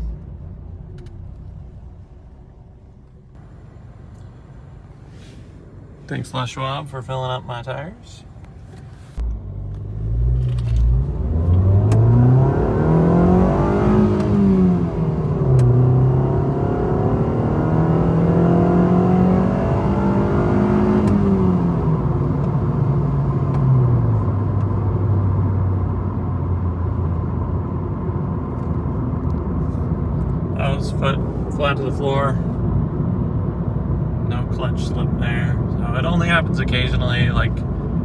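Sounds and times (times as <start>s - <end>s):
car engine revving: 9.2s - 38.0s.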